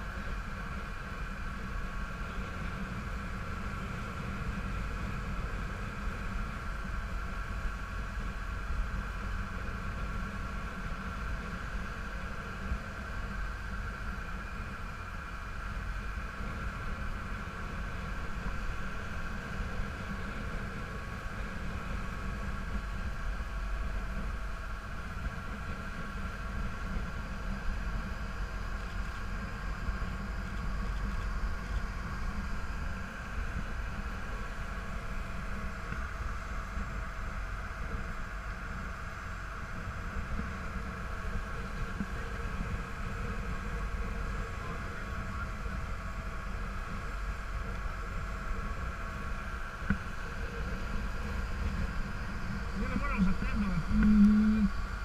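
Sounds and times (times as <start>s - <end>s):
motor boat engine droning: 0.0s - 55.0s.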